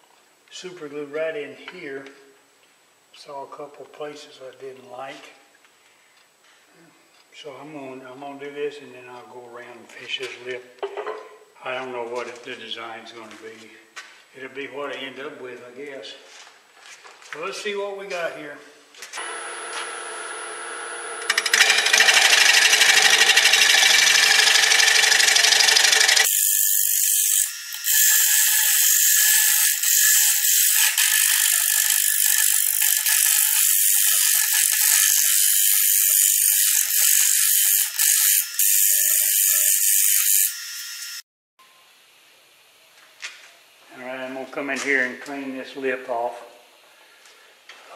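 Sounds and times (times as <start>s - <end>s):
wood lathe cutter rasping: 19.2s - 41.2s.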